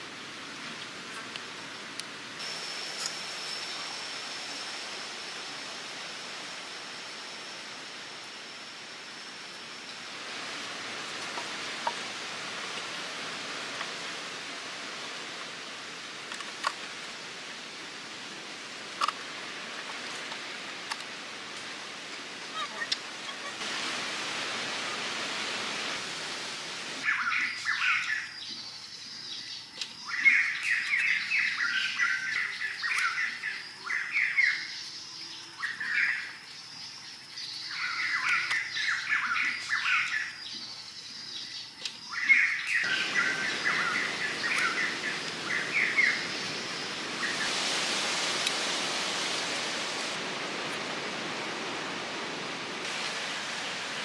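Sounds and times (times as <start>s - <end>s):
steady hiss: 0.0s - 54.0s
small birds chirping: 27.0s - 47.6s.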